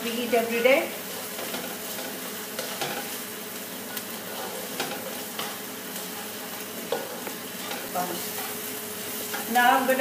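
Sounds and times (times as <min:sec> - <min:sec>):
onions sizzling in oil: 0:00.0 - 0:10.0
spatula scraping and tapping pan: 0:01.3 - 0:03.2, 0:03.8 - 0:08.6.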